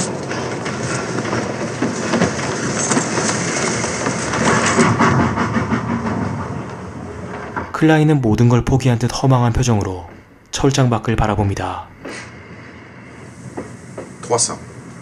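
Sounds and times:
freight train clatter and rumble: 0.0s - 15.0s.

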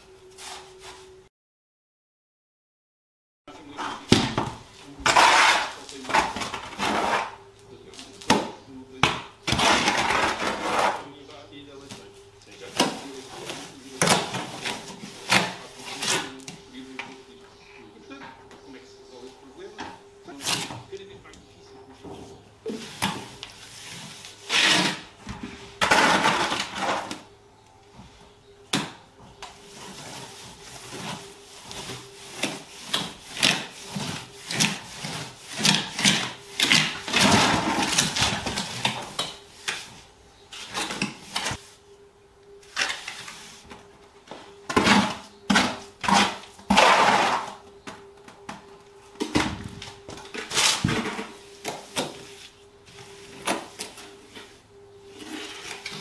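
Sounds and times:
trowel scraping on wall: 5.0s - 7.4s, 9.4s - 11.1s, 22.7s - 25.2s, 25.8s - 27.2s, 29.7s - 39.9s.

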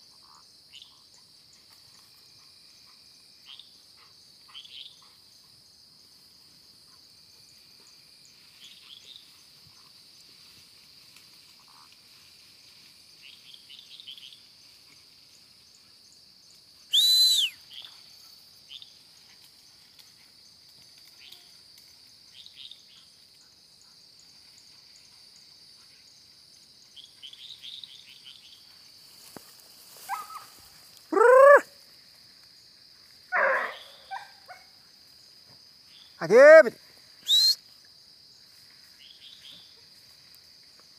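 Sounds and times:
insects buzzing: 0.0s - 40.9s
loud sharp call: 16.9s - 17.6s, 31.1s - 31.7s, 36.2s - 37.6s.

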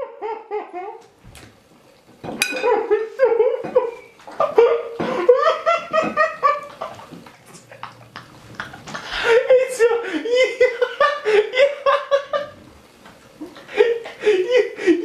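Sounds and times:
fork clinking on plate: 2.4s - 2.8s
hearty laughter: 2.6s - 12.6s, 13.4s - 15.0s.

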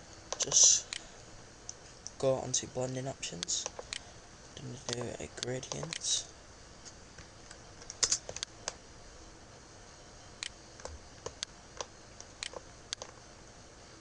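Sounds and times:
faint steady hiss: 0.0s - 14.0s
computer mouse clicking: 3.4s - 4.0s, 4.8s - 6.1s, 7.4s - 8.8s, 10.4s - 13.2s.

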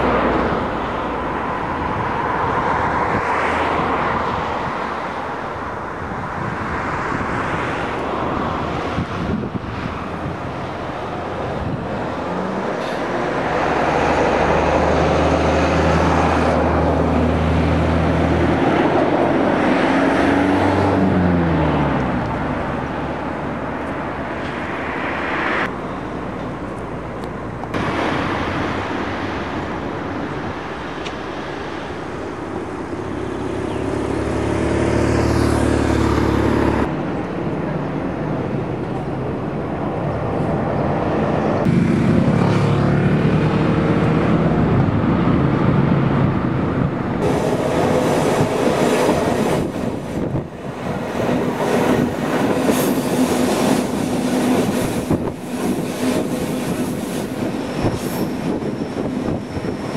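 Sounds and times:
train wheels on rails: 7.8s - 33.5s, 47.0s - 59.9s.

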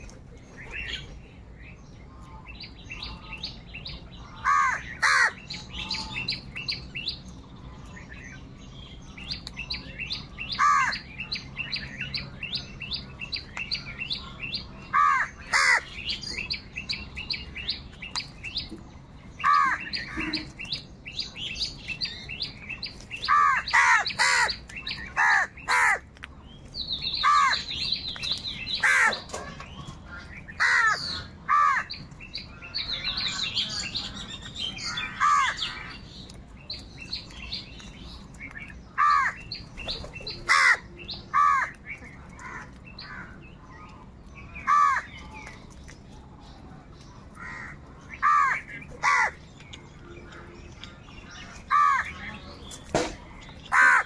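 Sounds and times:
small birds chirping: 0.0s - 54.0s
crows cawing: 4.4s - 5.4s, 10.6s - 11.0s, 14.9s - 16.0s, 19.4s - 20.5s, 23.3s - 24.6s, 25.2s - 26.1s, 27.2s - 27.7s, 28.8s - 29.2s, 30.6s - 32.0s, 35.1s - 35.9s, 39.0s - 39.4s, 40.5s - 41.8s, 44.7s - 45.1s, 47.4s - 49.4s, 51.7s - 52.1s, 53.7s - 54.0s.

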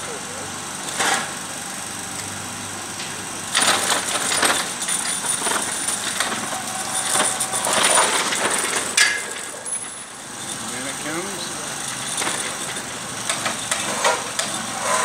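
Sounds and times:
engine-like background hum: 0.0s - 15.0s
metal hardware clinking and rattling: 3.6s - 11.2s, 11.8s - 14.6s.

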